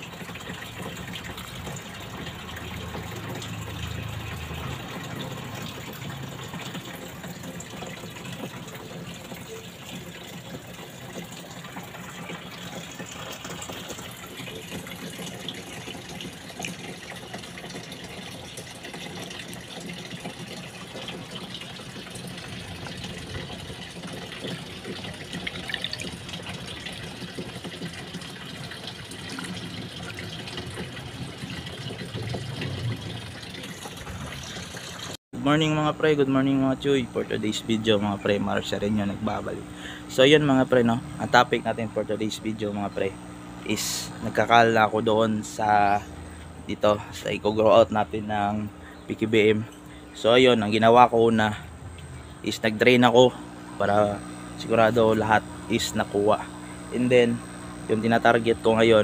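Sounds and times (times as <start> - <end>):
small water splashes: 0.0 - 35.2
water running in a tub: 0.0 - 59.0.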